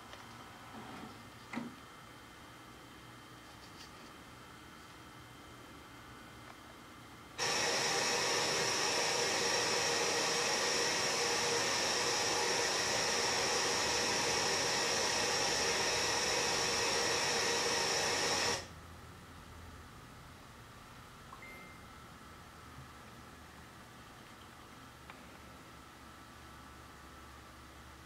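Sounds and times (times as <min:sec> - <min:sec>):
television static hiss: 0:00.0 - 0:21.5.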